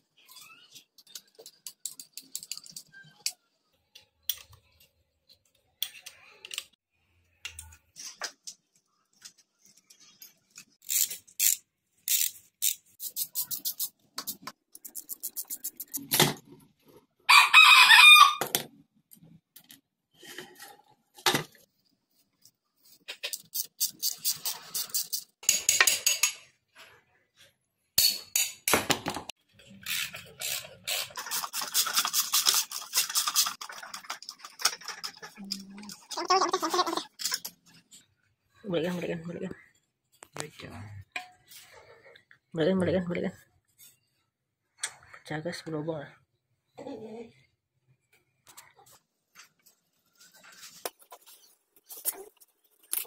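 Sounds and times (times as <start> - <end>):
tools clicking and tapping: 0.7 - 6.8, 23.1 - 26.5, 28.0 - 36.2.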